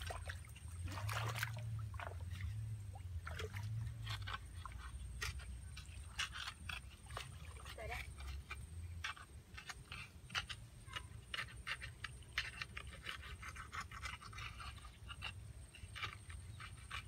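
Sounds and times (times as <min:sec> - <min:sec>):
hand squelching in wet mud: 0:00.0 - 0:07.7.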